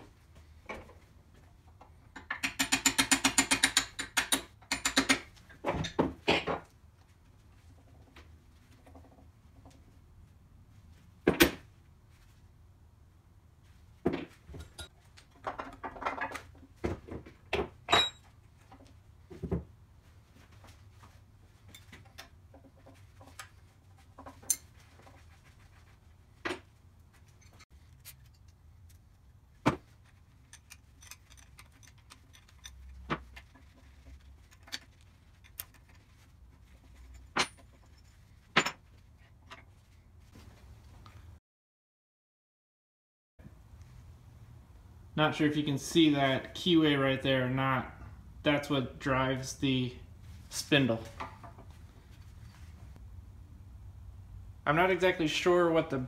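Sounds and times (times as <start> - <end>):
metal parts clinking and rattling: 30.0 - 39.7.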